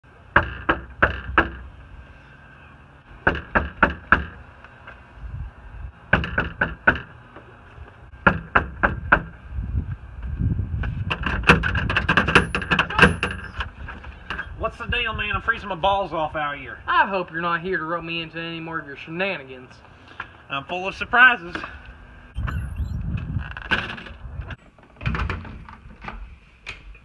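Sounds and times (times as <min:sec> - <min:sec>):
knocking on door: 0:03.2 - 0:04.4, 0:06.1 - 0:07.1.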